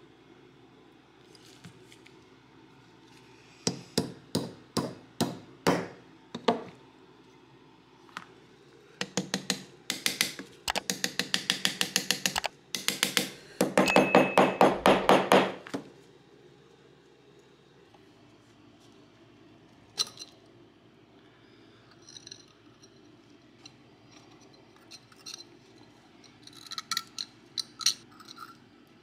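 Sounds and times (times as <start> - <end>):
small hammer tapping on metal punch: 9.0 - 15.6.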